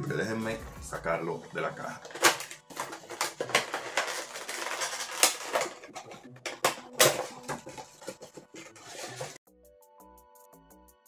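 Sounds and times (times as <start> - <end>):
cardboard box rustling: 2.1 - 9.4.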